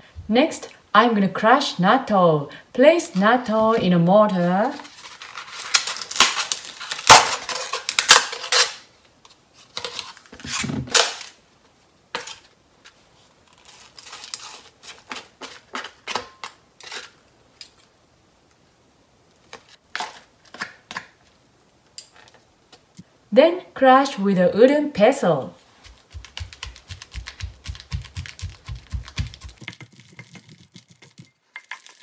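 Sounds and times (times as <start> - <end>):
plastic film crinkling: 4.6 - 8.8, 13.4 - 16.0, 25.7 - 32.0
chopsticks tapping plastic tray: 25.9 - 29.8.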